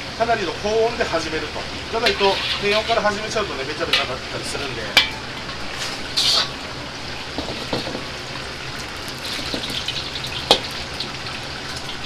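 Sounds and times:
gas burner roaring: 0.0s - 12.0s
hot oil hissing in wok: 0.0s - 12.0s
wok and ladle metal clatter: 2.0s - 3.1s, 3.8s - 6.6s, 7.3s - 8.1s, 9.2s - 10.7s.

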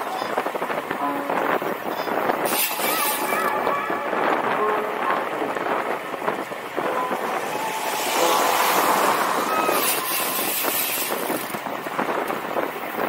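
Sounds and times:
wind noise on microphone: 0.0s - 13.0s
van driving past: 7.0s - 10.4s.

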